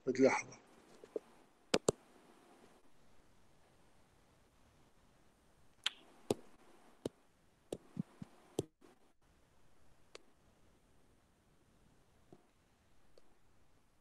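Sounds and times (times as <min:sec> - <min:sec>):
short sharp clicks and taps: 0:01.1 - 0:02.0.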